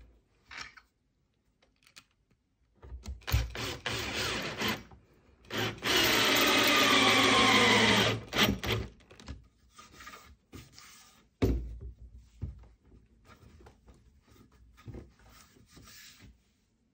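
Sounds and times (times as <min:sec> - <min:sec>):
cordless drill driving a screw: 0:03.2 - 0:04.8, 0:05.5 - 0:08.9.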